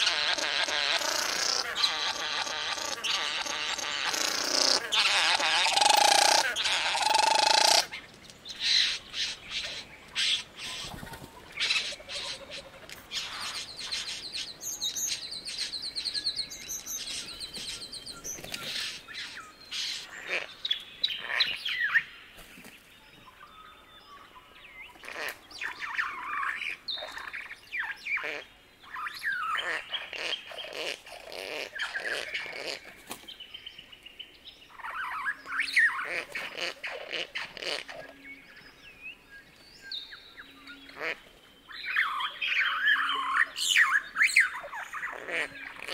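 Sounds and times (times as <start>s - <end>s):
bird buzzing churring song: 0.0s - 8.0s.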